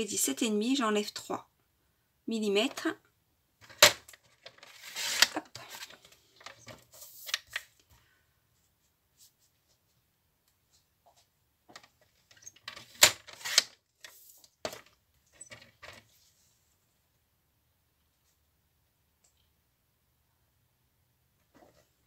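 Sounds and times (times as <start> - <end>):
paper trimmer clicking and scraping: 4.6 - 6.0, 13.0 - 13.7.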